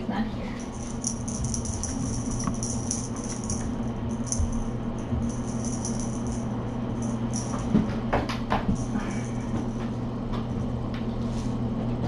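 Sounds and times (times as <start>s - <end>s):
low electrical hum: 0.0s - 12.0s
high jingling rattle: 0.6s - 7.8s, 8.7s - 9.7s.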